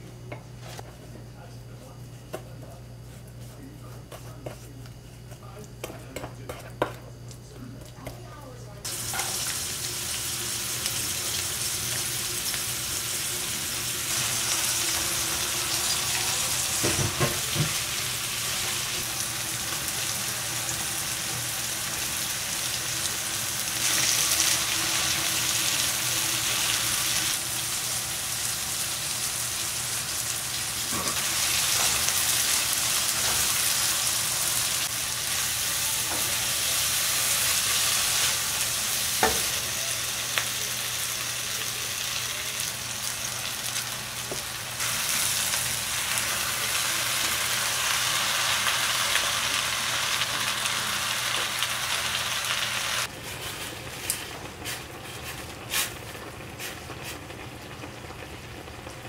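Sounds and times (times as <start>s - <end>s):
onions sizzling in a frying pan: 8.8s - 59.0s.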